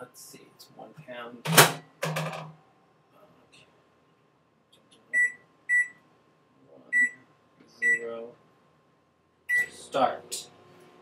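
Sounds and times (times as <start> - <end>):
microwave keypad beeps: 5.1 - 6.0, 6.9 - 7.2, 7.8 - 8.0, 9.5 - 9.8.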